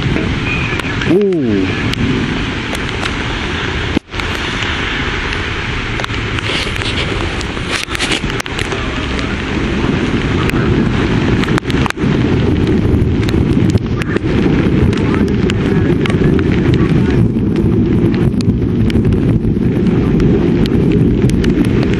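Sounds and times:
rain ticks: 0.0 - 21.9
wind buffeting microphone: 0.0 - 21.9.

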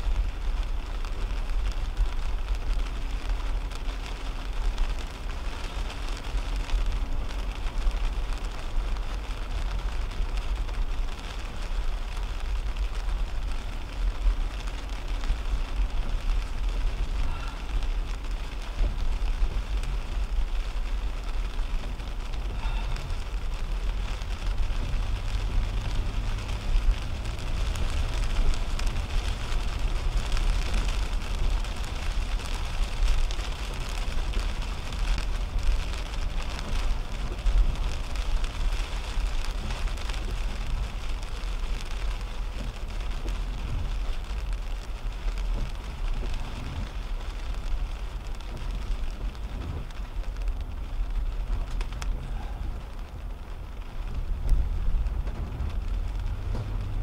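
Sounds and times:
rain hitting car windshield: 0.0 - 57.0
road and tyre noise: 0.0 - 57.0.

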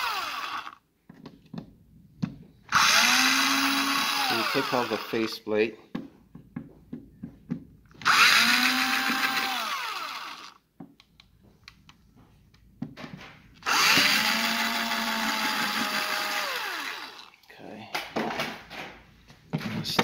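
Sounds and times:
cordless drill motor whining: 0.0 - 0.8, 2.7 - 5.4, 8.0 - 10.6, 13.6 - 17.4.

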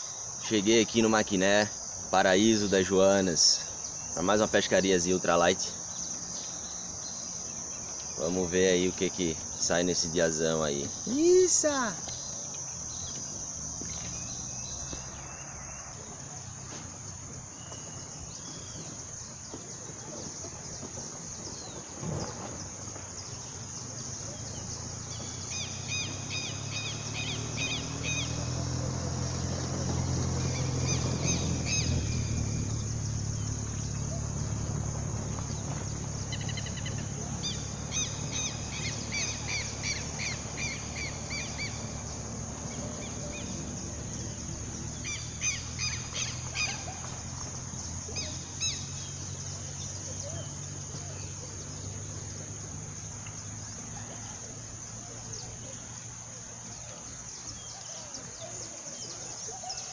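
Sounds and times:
bird chirping: 0.0 - 59.9
insects buzzing: 0.0 - 59.9.

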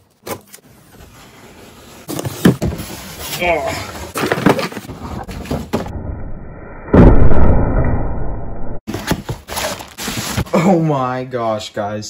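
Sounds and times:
loud low boom: 5.9 - 8.8
cardboard packaging handled: 8.9 - 10.6.

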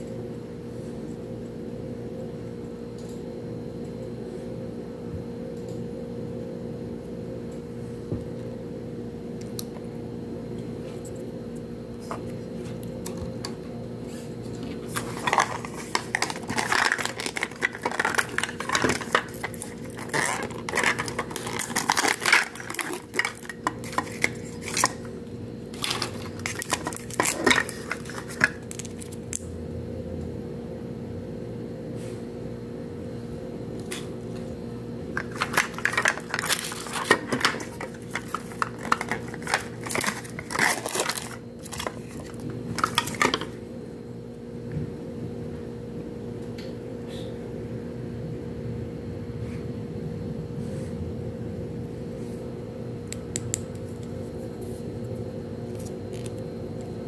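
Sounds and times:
steady low hum: 0.0 - 57.0
plastic clicks and crinkling: 14.9 - 25.0, 35.2 - 43.5.

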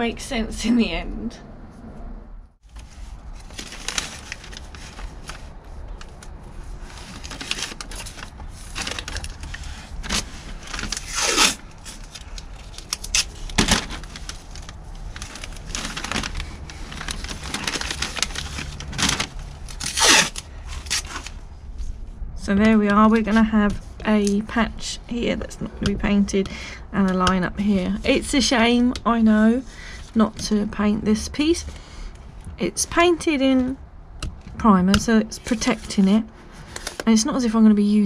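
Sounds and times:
masking tape ripping: 10.8 - 14.1, 17.1 - 21.3.

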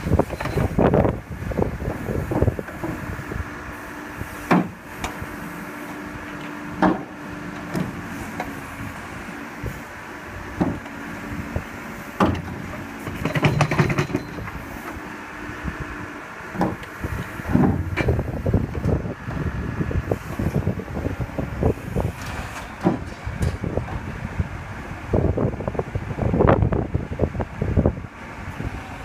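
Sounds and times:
diesel engine running under load: 0.0 - 29.0
rattling clatter: 12.2 - 14.6.

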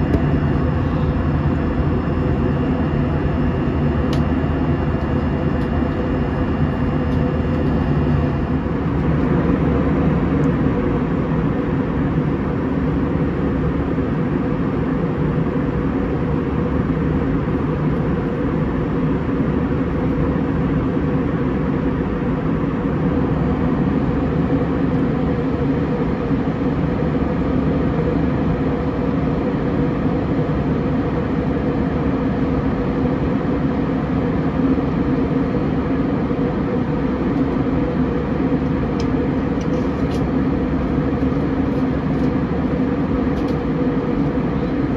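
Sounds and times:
jet engines roaring: 0.0 - 18.8
low even hum: 0.0 - 44.9.

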